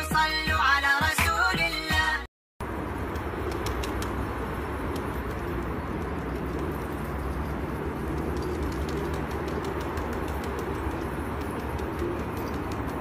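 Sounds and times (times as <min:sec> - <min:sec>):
pigeons cooing: 0:04.8 - 0:13.0.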